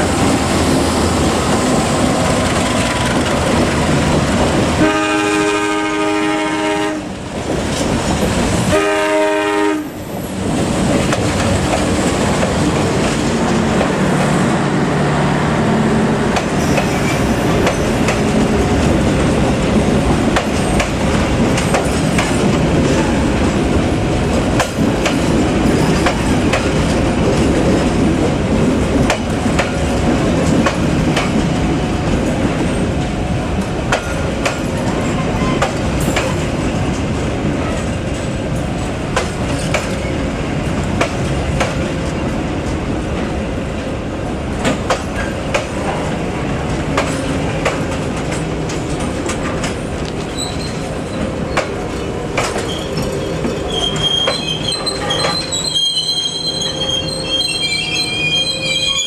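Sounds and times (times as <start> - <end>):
steel wheels rumbling on rails: 0.0 - 59.0
wheels clicking over rail joints: 16.3 - 40.2, 44.6 - 56.0.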